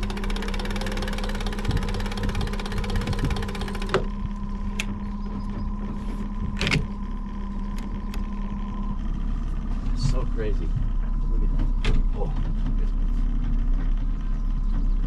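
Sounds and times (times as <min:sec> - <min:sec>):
fishing reel ticking: 0:00.0 - 0:04.1
trolling motor humming: 0:00.0 - 0:15.0.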